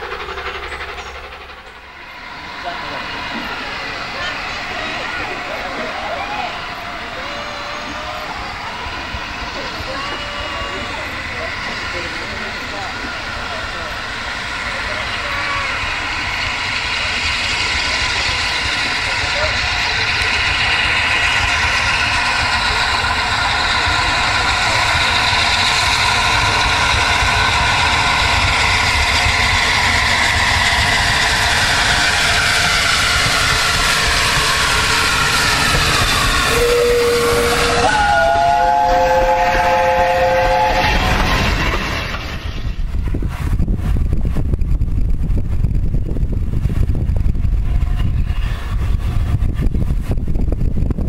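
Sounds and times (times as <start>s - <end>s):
steam locomotive running: 0.0s - 51.0s
wind buffeting microphone: 0.1s - 51.0s
steam whistle: 34.6s - 41.4s.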